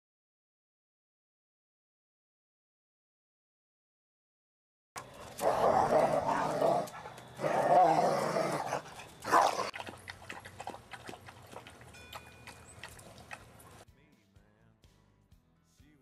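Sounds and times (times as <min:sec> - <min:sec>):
dogs growling: 0:05.0 - 0:13.8
dogs lapping water: 0:05.0 - 0:13.8.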